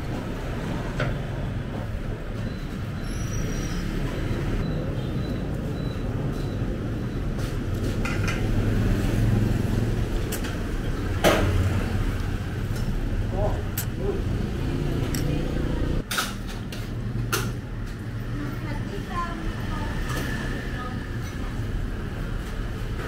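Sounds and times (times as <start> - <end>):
street traffic rumble: 0.0 - 23.0
vehicle passing: 7.8 - 16.0.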